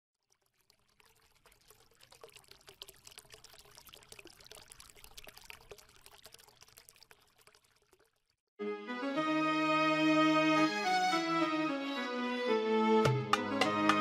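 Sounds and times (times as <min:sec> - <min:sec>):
water trickling and pouring: 0:00.1 - 0:08.5.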